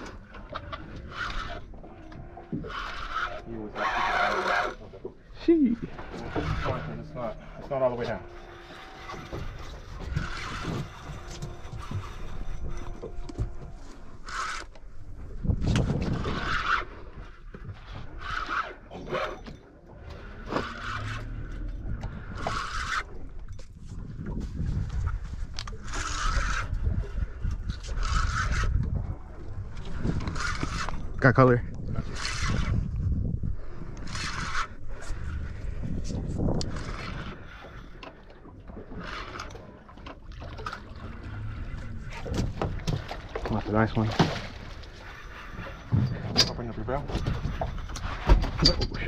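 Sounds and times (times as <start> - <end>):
fishing reel cranking: 0.0 - 5.0, 25.5 - 31.2, 31.9 - 33.0, 33.6 - 38.2
reel and rod scraping: 0.0 - 49.0
water lapping against boat: 0.0 - 49.0.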